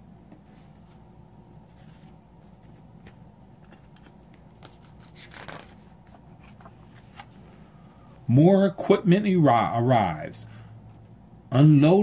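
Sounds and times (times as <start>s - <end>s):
faint steady hum: 0.0s - 12.0s
book page turning: 1.7s - 7.4s.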